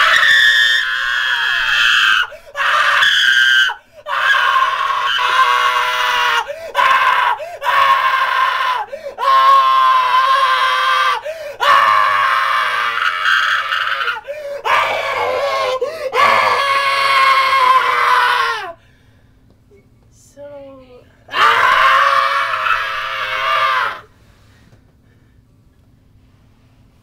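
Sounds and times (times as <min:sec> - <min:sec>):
man screaming: 0:00.0 - 0:18.8, 0:21.3 - 0:24.1.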